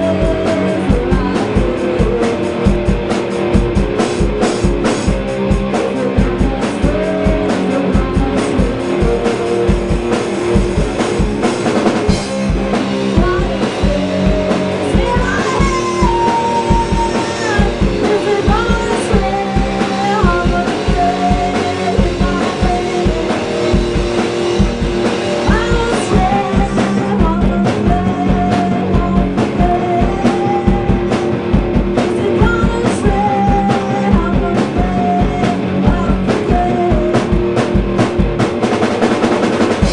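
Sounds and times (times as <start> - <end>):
woman singing: 0.0 - 3.1, 5.4 - 10.0, 13.1 - 24.2, 25.4 - 37.8
drum kit kick-drum beat: 0.0 - 39.9
electric guitar: 0.0 - 39.9.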